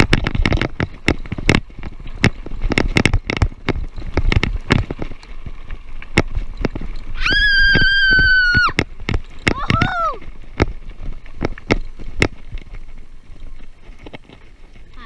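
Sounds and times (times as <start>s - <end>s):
bike rattling over gravel: 0.0s - 15.0s.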